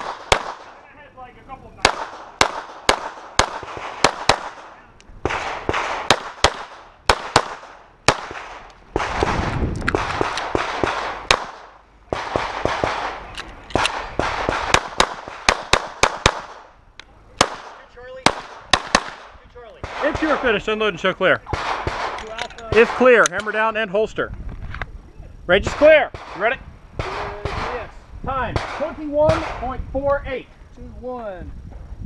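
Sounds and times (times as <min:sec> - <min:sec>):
pistol shots: 0:00.0 - 0:00.8, 0:01.8 - 0:16.7, 0:17.4 - 0:20.6, 0:21.5 - 0:23.2, 0:25.7 - 0:27.9, 0:28.5 - 0:29.6.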